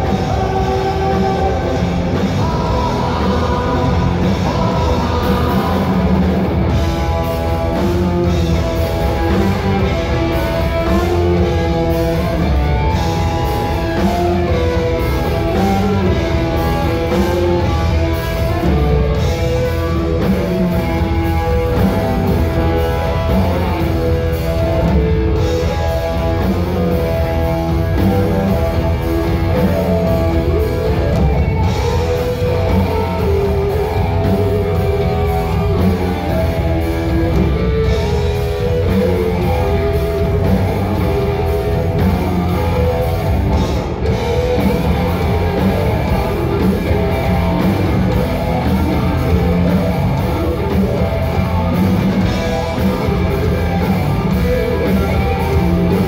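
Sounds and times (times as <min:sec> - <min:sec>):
bass guitar: 0:00.0 - 0:56.0
drum kit: 0:00.0 - 0:56.0
electric guitars: 0:00.0 - 0:56.0.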